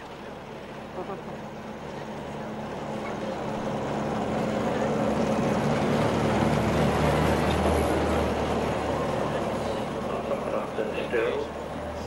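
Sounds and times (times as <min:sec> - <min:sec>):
truck engine driving past: 0:00.0 - 0:12.0.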